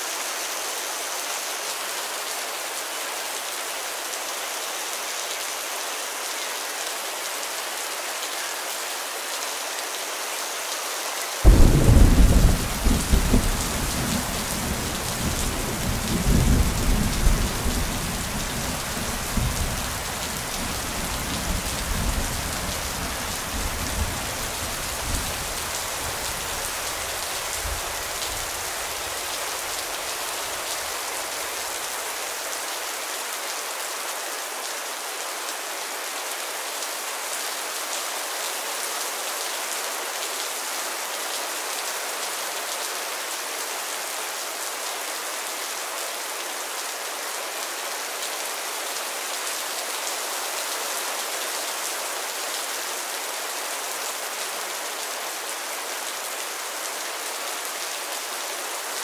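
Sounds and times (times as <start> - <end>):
steady rain falling: 0.0 - 59.0
thunder clap rumbling: 11.5 - 14.4.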